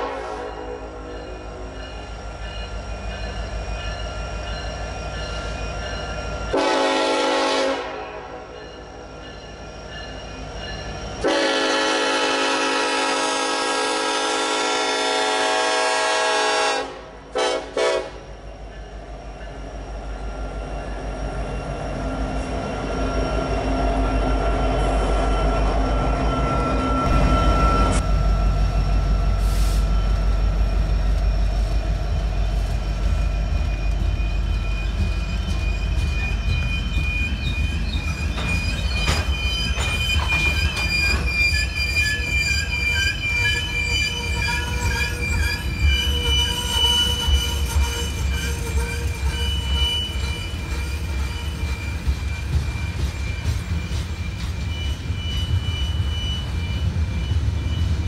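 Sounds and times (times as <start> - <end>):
train cars rumbling: 0.0 - 58.0
wheel squeal: 20.3 - 58.0.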